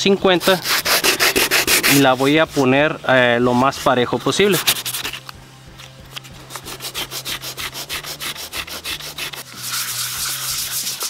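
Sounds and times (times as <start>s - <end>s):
sandpaper scratching back and forth: 0.3s - 2.7s, 3.8s - 5.2s, 6.5s - 11.0s.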